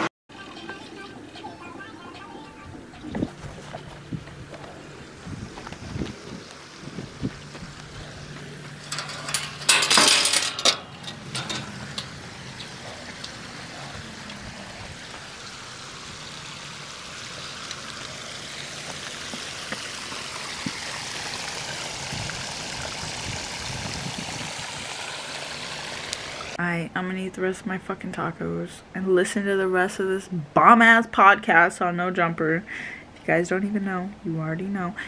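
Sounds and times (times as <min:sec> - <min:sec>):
waterfall splashing into pond: 0:05.1 - 0:08.2, 0:11.2 - 0:26.6.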